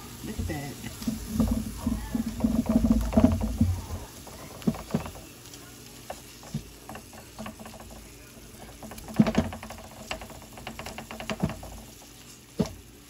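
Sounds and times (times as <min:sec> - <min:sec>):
spatula scraping vegetables in pan: 0:00.2 - 0:09.1.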